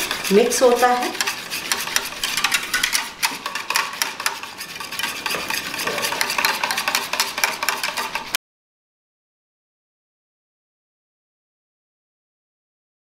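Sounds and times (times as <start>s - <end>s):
wire whisk scraping a pan: 0.0s - 8.4s.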